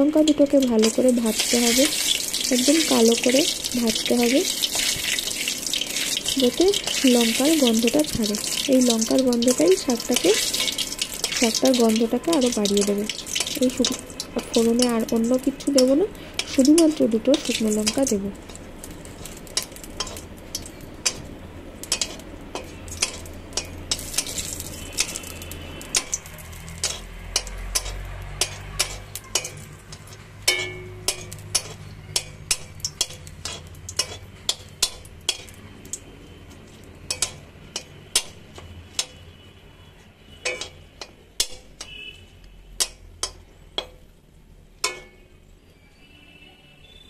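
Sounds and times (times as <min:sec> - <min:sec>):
metal spatula tapping wok: 0:00.0 - 0:36.0, 0:37.0 - 0:39.2, 0:40.4 - 0:42.1, 0:42.8 - 0:44.0, 0:44.8 - 0:45.3
chillies sizzling in oil: 0:00.0 - 0:46.5.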